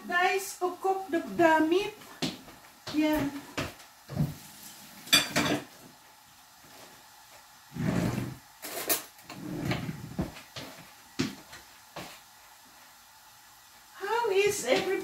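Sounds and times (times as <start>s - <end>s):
cupboards and dishes clattering: 5.1s - 5.7s.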